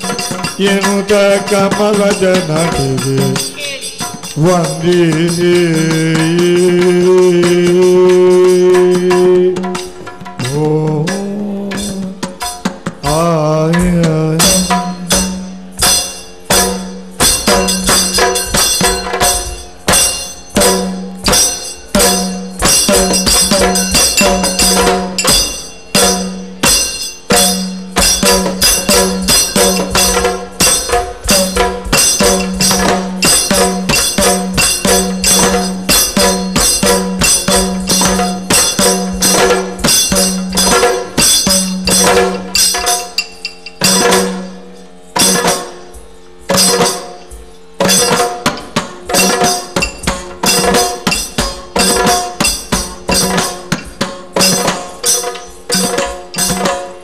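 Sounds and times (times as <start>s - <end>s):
drum strokes: 0.0s - 57.0s
ringing hand cymbals: 0.0s - 57.0s
steady drone: 13.2s - 47.5s.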